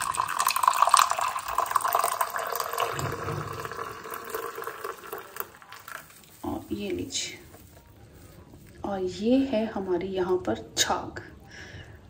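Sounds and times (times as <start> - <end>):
milk pouring and splashing: 0.0 - 6.7.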